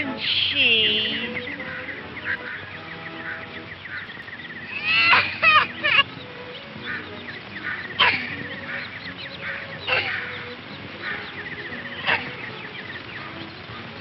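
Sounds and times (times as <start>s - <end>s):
chicks peeping: 0.0s - 14.0s
chick calls sliding down: 4.7s - 6.1s.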